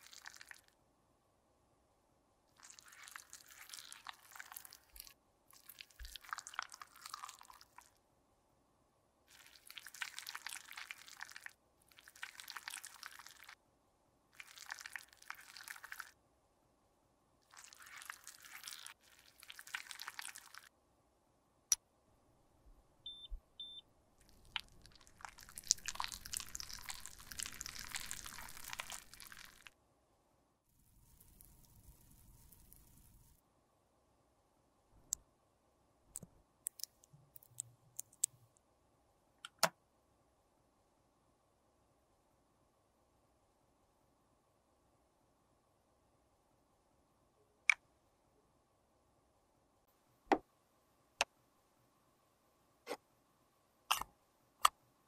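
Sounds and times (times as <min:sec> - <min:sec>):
short high beeps: 0:23.1 - 0:23.8.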